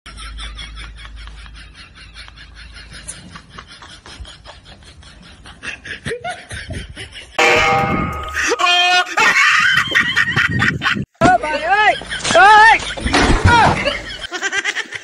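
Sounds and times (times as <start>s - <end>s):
wind rumble on microphone: 6.0s - 7.4s.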